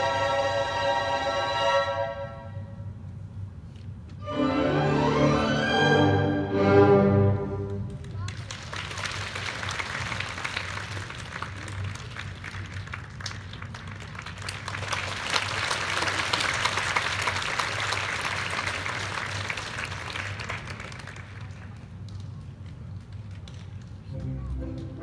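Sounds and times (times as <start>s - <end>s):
audience applauding: 7.8s - 25.0s.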